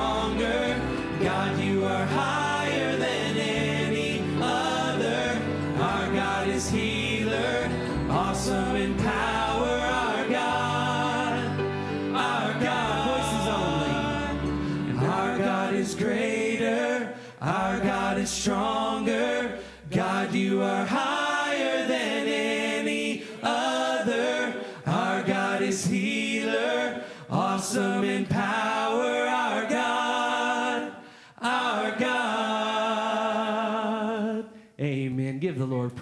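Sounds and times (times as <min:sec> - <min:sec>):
congregation singing: 0:00.0 - 0:34.7.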